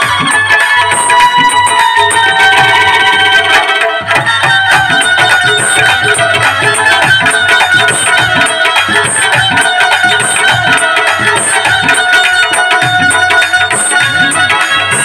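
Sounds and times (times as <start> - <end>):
background music with drum beat: 0.0 - 15.0.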